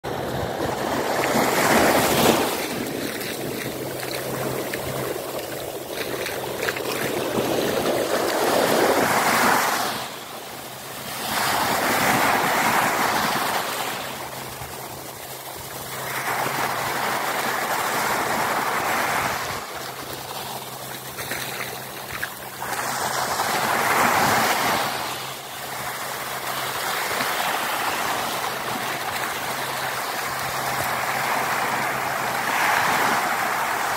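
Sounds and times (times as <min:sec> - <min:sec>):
small waves breaking on sand: 0:00.1 - 0:33.9.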